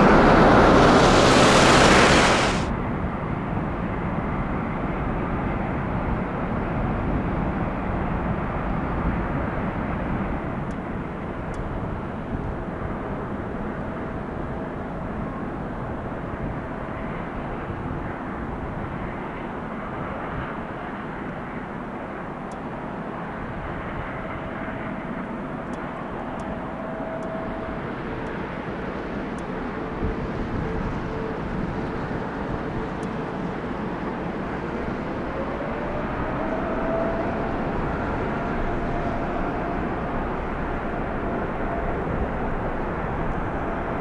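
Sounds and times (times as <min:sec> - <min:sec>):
jet engines whining: 0:00.0 - 0:02.7.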